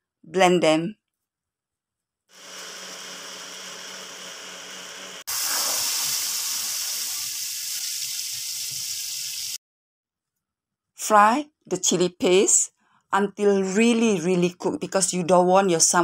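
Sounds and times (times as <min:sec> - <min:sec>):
blender motor hum: 0:02.3 - 0:07.3
paste sizzling in oil: 0:05.2 - 0:09.6.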